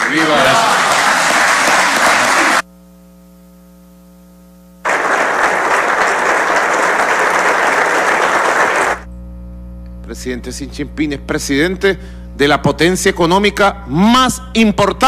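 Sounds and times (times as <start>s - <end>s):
audience applauding: 0.0s - 2.6s, 4.8s - 9.1s
electrical hum: 0.0s - 15.0s.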